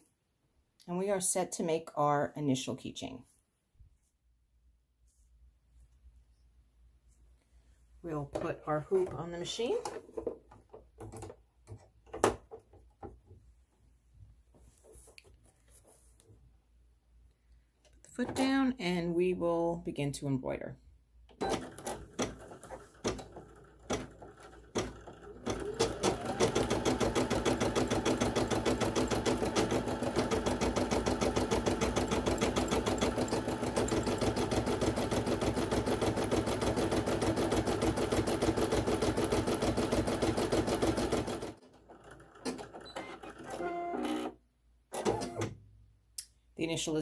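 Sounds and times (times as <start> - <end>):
embroidery machine stitching: 21.3 - 44.3, 44.9 - 45.5.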